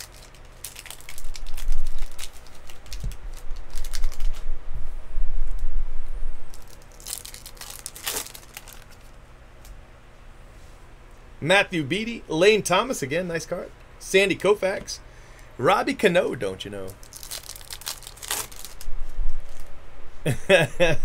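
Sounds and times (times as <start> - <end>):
foil wrapper crinkling: 0.0 - 4.5, 6.5 - 9.2, 16.8 - 19.7.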